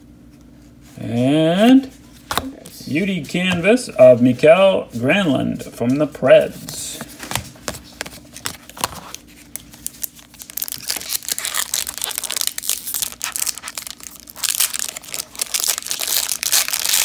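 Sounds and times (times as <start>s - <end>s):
foil wrapper crinkling: 7.9s - 17.0s.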